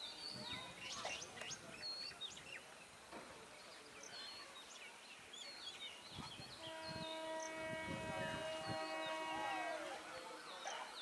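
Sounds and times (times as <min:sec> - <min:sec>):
small birds chirping: 0:00.0 - 0:07.8
train horn blast: 0:06.6 - 0:09.9.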